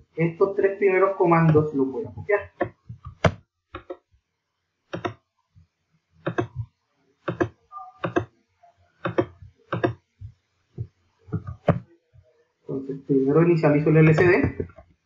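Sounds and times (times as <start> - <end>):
mouse and keyboard clicks: 4.9 - 5.2, 6.2 - 6.6, 7.3 - 8.3, 9.0 - 10.0.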